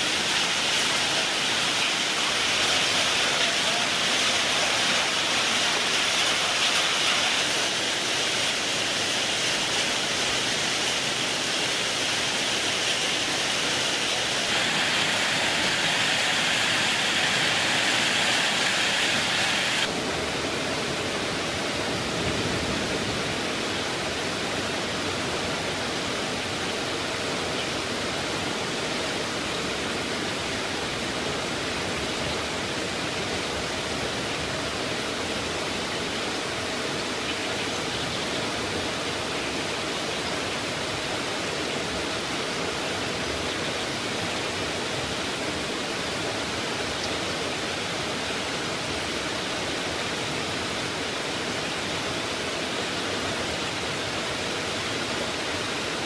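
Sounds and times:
heavy rain hiss: 0.0s - 56.0s.

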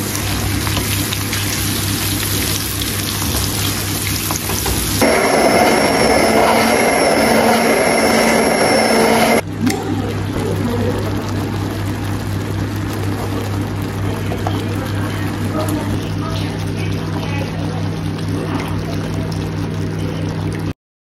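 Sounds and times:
vegetables sizzling in a frying pan: 0.0s - 9.4s, 10.6s - 20.4s
hand blender motor whine: 5.0s - 9.4s.

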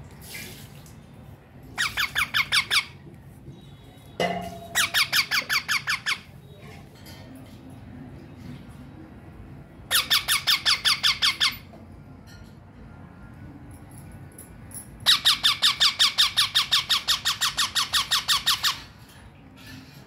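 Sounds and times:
parakeet squawking rapidly: 1.8s - 3.0s, 4.7s - 6.4s, 9.9s - 11.7s, 15.0s - 19.0s.

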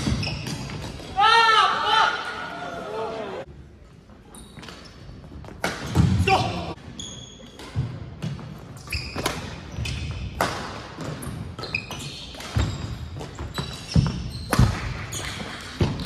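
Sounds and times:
sneakers squeaking on wood: 0.0s - 1.1s, 6.9s - 10.4s, 11.1s - 16.0s.

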